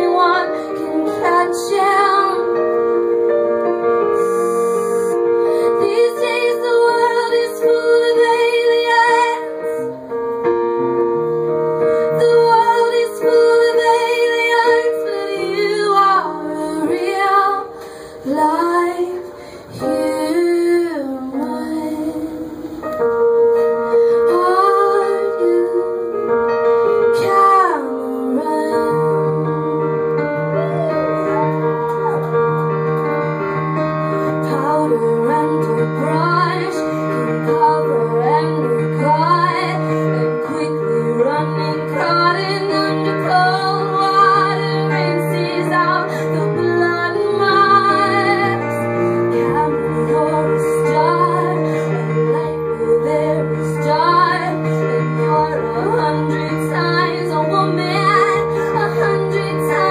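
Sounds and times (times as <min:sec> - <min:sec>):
woman singing: 0:00.0 - 0:02.9, 0:04.1 - 0:10.0, 0:12.0 - 0:22.6, 0:24.2 - 0:26.4, 0:27.0 - 0:32.4, 0:34.4 - 0:59.9
upright piano chords: 0:00.0 - 0:59.9.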